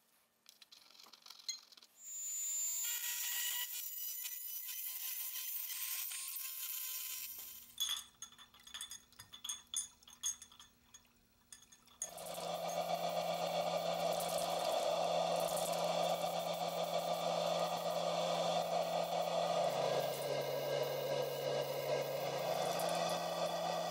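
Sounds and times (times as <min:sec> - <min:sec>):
brass parts clinking against glass jar: 0:07.8 - 0:12.2
low motor hum: 0:12.0 - 0:23.9
rotary tool grinding whine: 0:12.0 - 0:23.9.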